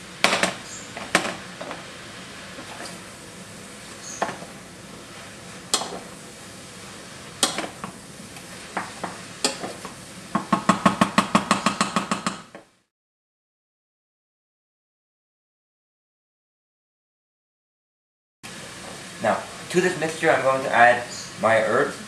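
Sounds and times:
food sizzling in butter: 0:00.7 - 0:10.3
spoon clanking against a pot: 0:07.4 - 0:07.8, 0:08.8 - 0:09.8.

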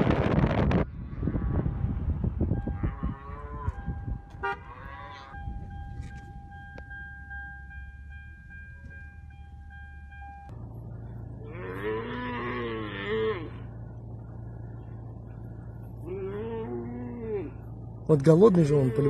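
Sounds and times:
steady low hum: 0:05.4 - 0:18.4
animal long wavering call: 0:16.0 - 0:17.7.

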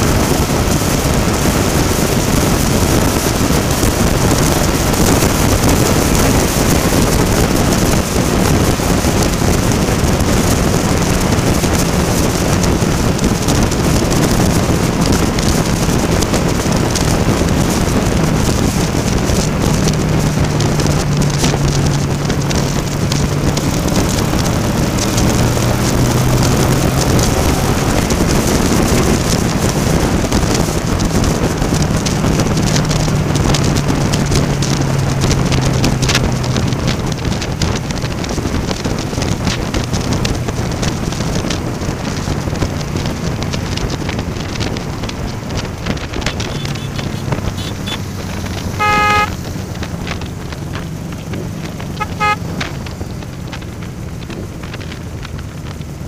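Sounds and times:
motorcycle engine cruising: 0:00.0 - 0:56.0
wind rush: 0:00.0 - 0:56.0
horn toot: 0:46.3 - 0:49.4, 0:51.9 - 0:52.8.

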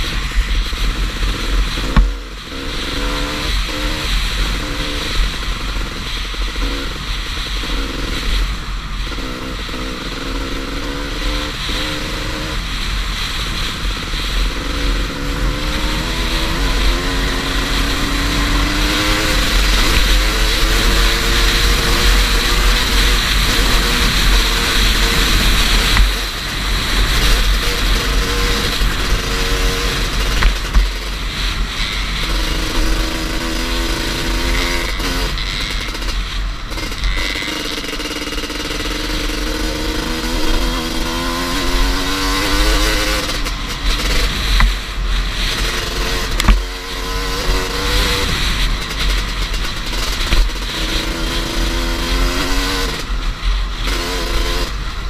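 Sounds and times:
dirt bike engine revving: 0:00.0 - 0:55.0
wind rush on microphone: 0:39.2 - 0:54.0.

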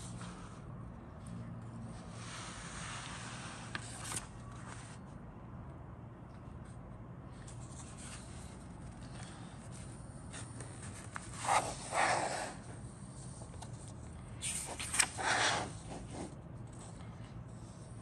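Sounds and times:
paper booklet rustling: 0:02.4 - 0:05.0, 0:07.4 - 0:12.5, 0:13.2 - 0:17.0.

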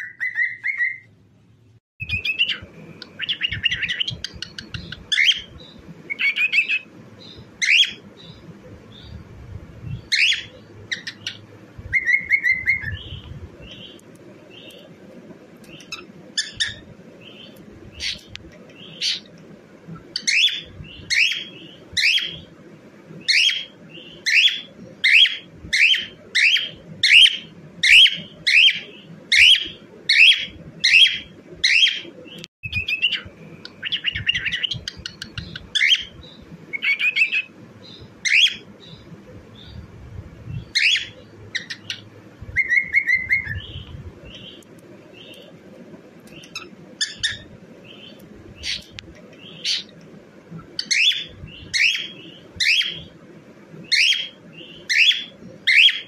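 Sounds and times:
cockatiel chirping and whistling: 0:00.0 - 0:01.1, 0:02.0 - 0:05.5, 0:06.1 - 0:06.9, 0:10.0 - 0:13.2, 0:15.8 - 0:16.9, 0:20.2 - 0:22.4, 0:23.3 - 0:37.5, 0:38.2 - 0:38.6, 0:40.7 - 0:43.8, 0:46.4 - 0:47.5, 0:50.8 - 0:53.1, 0:53.9 - 0:56.0.

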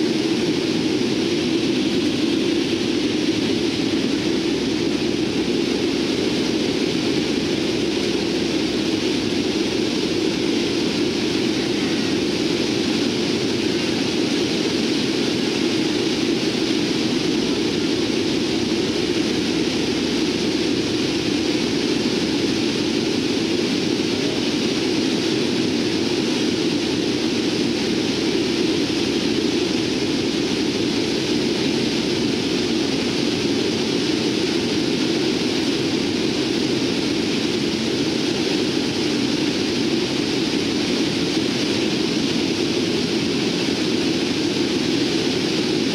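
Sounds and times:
turboprop engines droning: 0:00.0 - 0:45.9.

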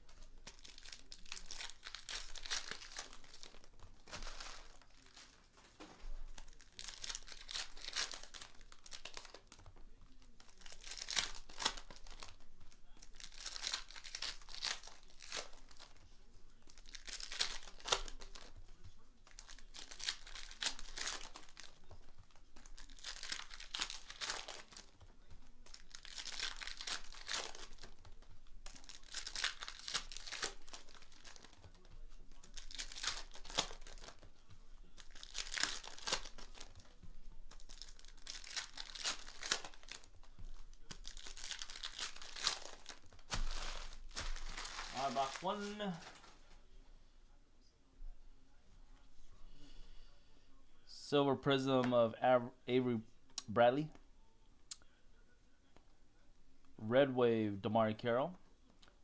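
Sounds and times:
foil wrappers ripping and crinkling: 0:00.0 - 0:46.5.

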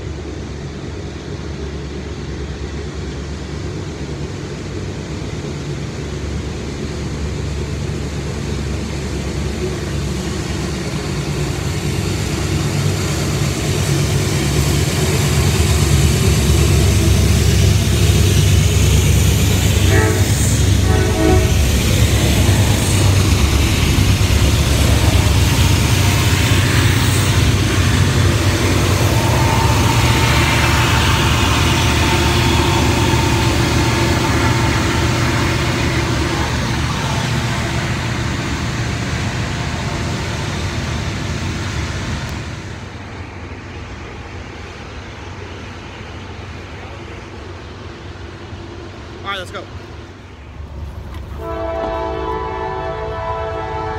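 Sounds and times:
diesel locomotive rumble: 0:00.0 - 0:53.9
train cars rolling by: 0:00.0 - 0:53.9
train horn blast: 0:19.7 - 0:21.8, 0:28.8 - 0:37.1, 0:51.4 - 0:53.9
thin steady wheel squeal: 0:24.4 - 0:36.3.

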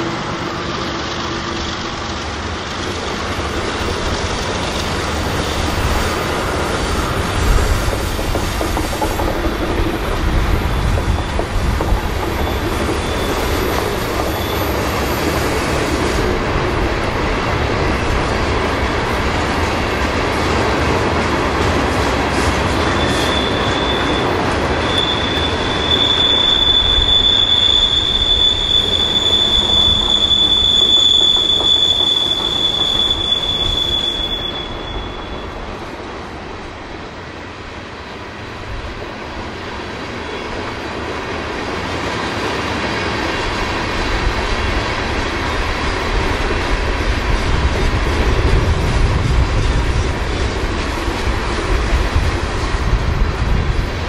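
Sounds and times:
train rolling on rails: 0:00.0 - 0:54.0
high wheel squeal: 0:04.6 - 0:16.0, 0:22.6 - 0:35.7.

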